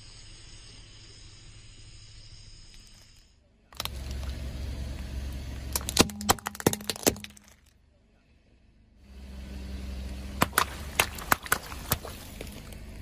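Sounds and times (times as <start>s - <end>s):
plastic toy cracking and snapping: 3.8s - 4.3s, 5.7s - 7.7s
water balloons popping: 5.7s - 7.7s, 10.4s - 12.9s.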